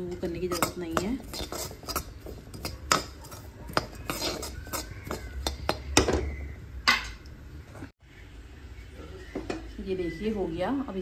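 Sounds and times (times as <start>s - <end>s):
metal spatula scraping a pan: 0.1s - 6.4s
spatula clinking on pan: 0.5s - 6.1s.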